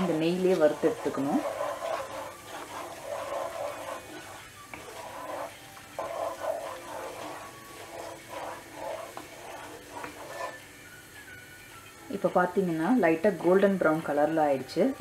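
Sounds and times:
wooden spatula scraping pan: 0.0s - 10.7s
nuts sizzling in oil: 0.0s - 15.0s.

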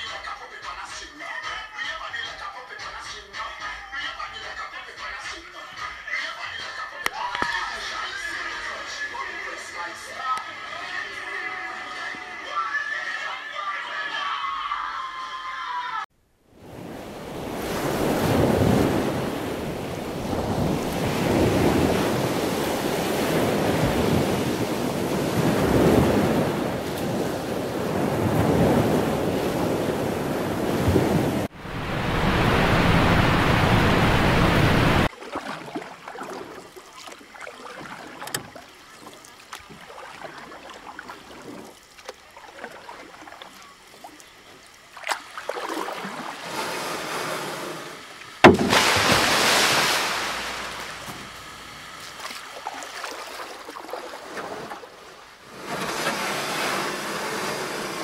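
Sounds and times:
sea surf rushing: 16.6s - 35.1s, 45.5s - 58.0s
wind buffeting microphone: 16.7s - 35.1s.

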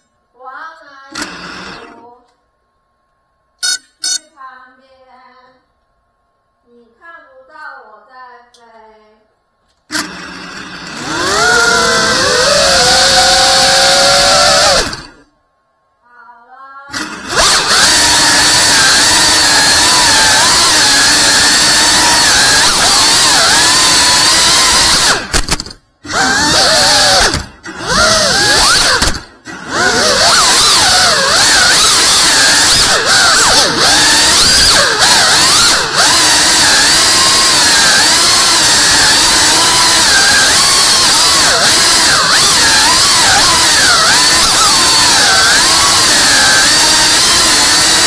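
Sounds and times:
drone motors and propellers whining: 11.0s - 15.2s, 17.2s - 48.0s.

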